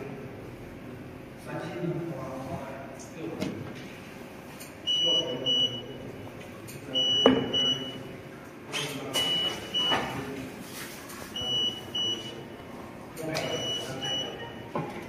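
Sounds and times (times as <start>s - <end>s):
alarm buzzer double beeps: 7.0s - 8.0s, 11.4s - 12.4s, 13.4s - 14.7s.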